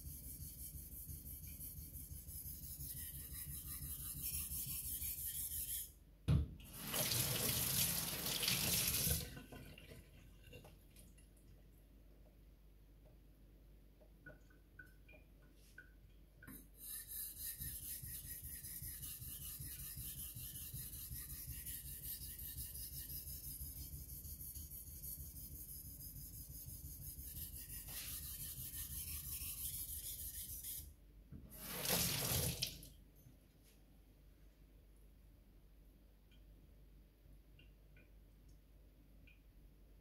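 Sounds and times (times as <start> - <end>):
tap water running: 6.6 - 11.0, 31.5 - 32.9
knife scraping on whetstone: 16.8 - 30.8.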